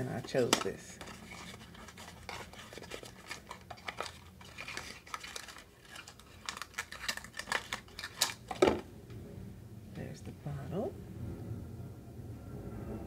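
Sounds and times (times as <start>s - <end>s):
packaging rustling: 0.0s - 8.8s
light clicks of packaging: 0.3s - 8.6s.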